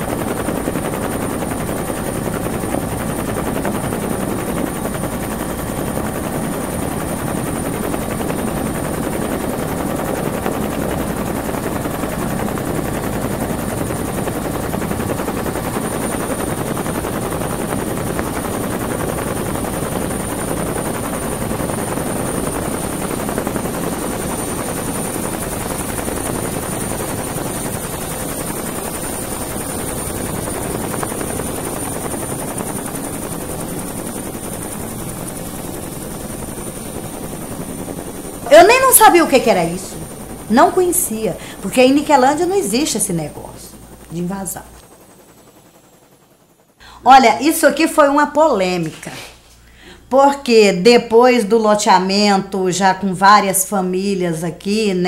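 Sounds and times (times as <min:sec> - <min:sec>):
helicopter engine noise: 0:00.0 - 0:51.0
helicopter rotor chopping: 0:00.0 - 0:55.0
steady high tone: 0:38.4 - 0:44.8.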